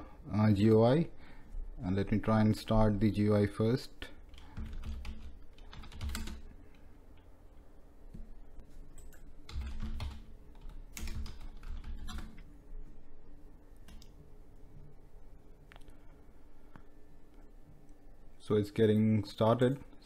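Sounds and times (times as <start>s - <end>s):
typing on computer keyboard: 4.3s - 6.4s, 9.0s - 12.4s.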